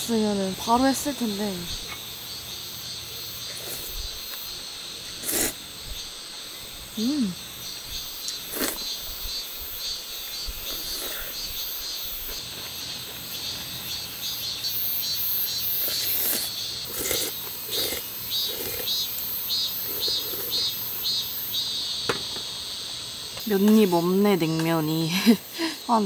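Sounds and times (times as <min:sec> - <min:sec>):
insects chirring: 0:00.0 - 0:26.0
person slurping noodles: 0:05.2 - 0:05.6, 0:08.4 - 0:08.9, 0:15.9 - 0:18.9
person humming: 0:07.0 - 0:07.5.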